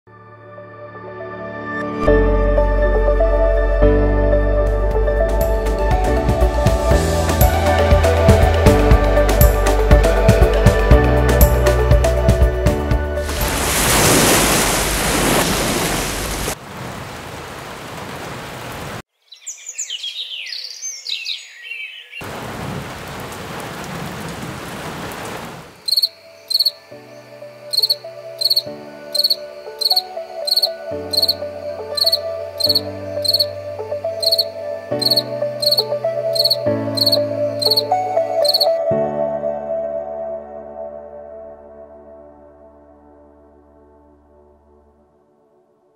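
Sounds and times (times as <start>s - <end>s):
calm background music: 0.1s - 14.4s, 26.0s - 45.9s
ocean waves washing in: 13.2s - 19.0s
birds chirping: 19.2s - 22.3s, 25.7s - 31.4s, 32.0s - 33.5s, 34.2s - 38.8s
light ticking beat: 34.2s - 37.8s.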